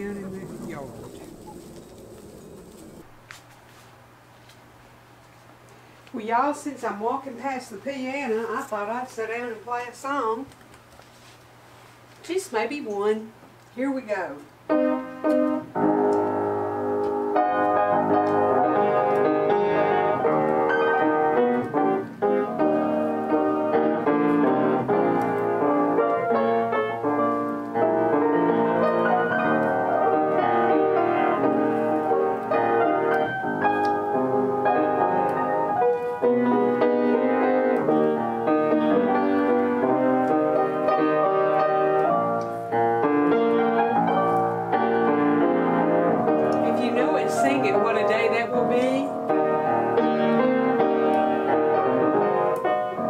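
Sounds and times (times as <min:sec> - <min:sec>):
piano playing chords: 0:14.6 - 0:53.0.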